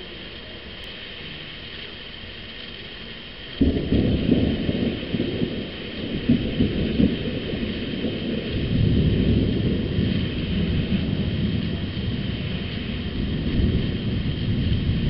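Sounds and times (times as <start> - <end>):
rain hissing: 0.0 - 15.0
thunder rumbling: 3.6 - 15.0.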